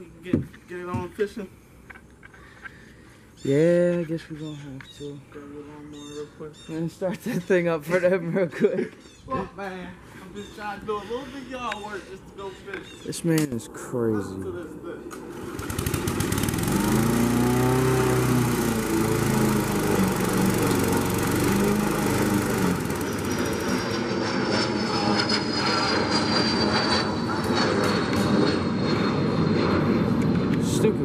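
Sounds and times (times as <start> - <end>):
airplane passing overhead: 4.3 - 31.0
lawn mower cutting grass: 15.2 - 25.9.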